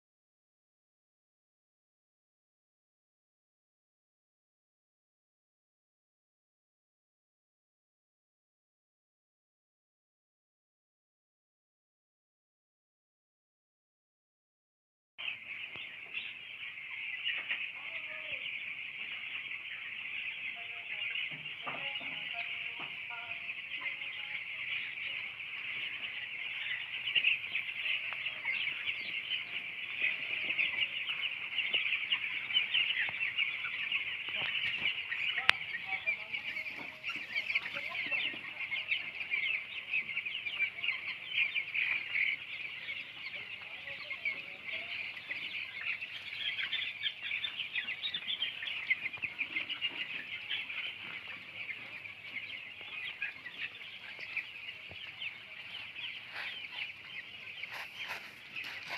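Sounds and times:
chicks peeping: 0:15.2 - 0:58.9.

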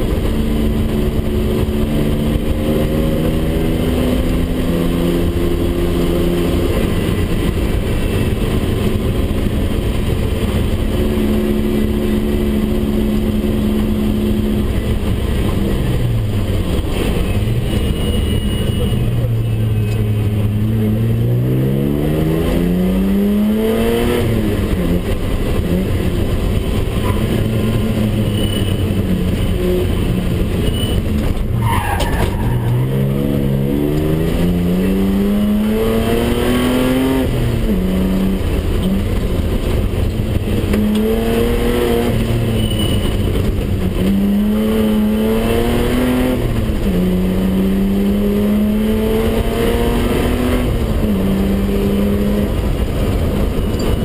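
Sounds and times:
falling squeal: 0:17.3 - 0:19.7
car engine revving hard: 0:20.3 - 0:30.6, 0:31.6 - 0:54.0.

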